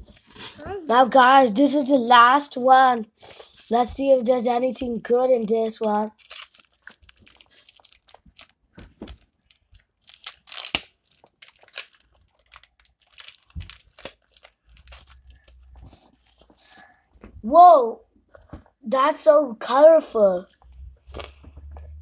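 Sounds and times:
foil wrapper tearing and crinkling: 6.1s - 15.7s.

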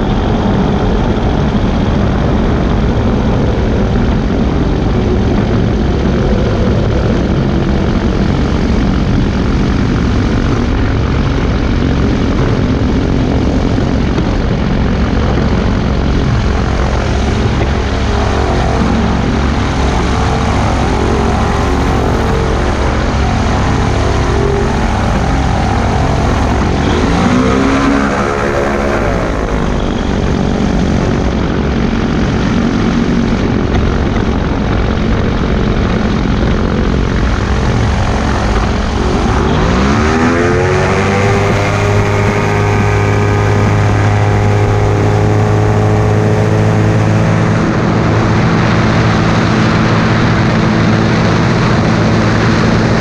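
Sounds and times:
propeller engine running: 0.0s - 53.0s
wind rush: 0.0s - 53.0s
brief pitch-bending sound: 16.2s - 31.2s.

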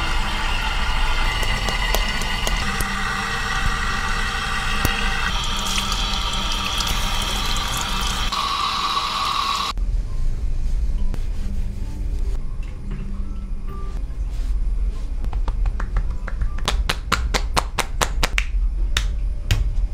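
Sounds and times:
water spraying onto hair: 0.0s - 9.8s.

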